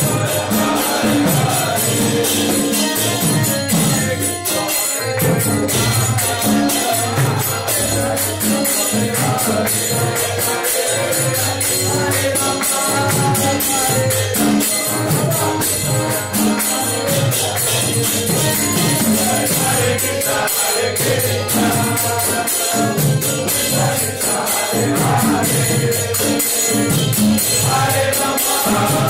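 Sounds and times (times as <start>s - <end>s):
accordion playing chords: 0.0s - 23.0s
group chanting: 0.0s - 29.0s
jingling percussion: 0.0s - 29.0s.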